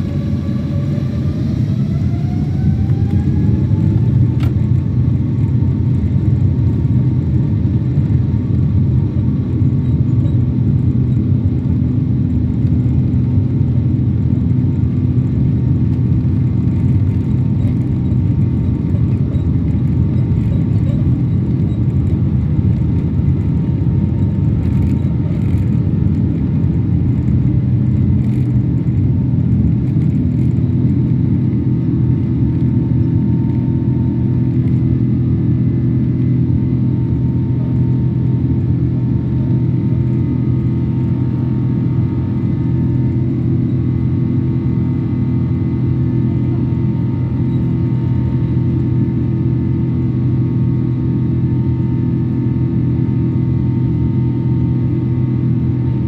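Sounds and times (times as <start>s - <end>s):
jet engines spooling up: 0.0s - 5.4s
heavy rumble of plane rolling: 0.0s - 56.0s.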